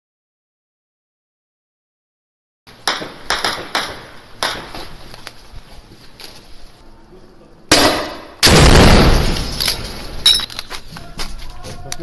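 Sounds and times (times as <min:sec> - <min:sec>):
loud bang: 0:07.7 - 0:10.2.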